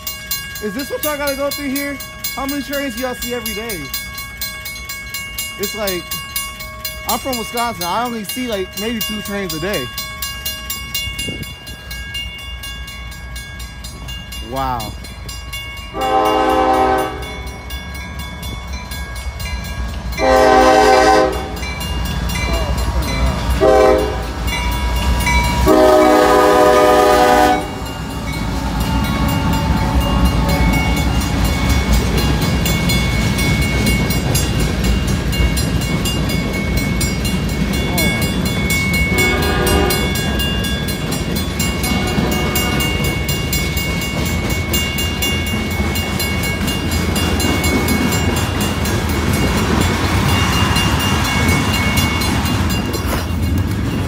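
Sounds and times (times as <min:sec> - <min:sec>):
train wheel and rail rumble: 0:00.0 - 0:54.0
locomotive air horn blasts: 0:16.0 - 0:17.3, 0:20.2 - 0:21.6, 0:23.6 - 0:24.3, 0:25.6 - 0:27.8, 0:39.1 - 0:40.1, 0:41.9 - 0:42.9.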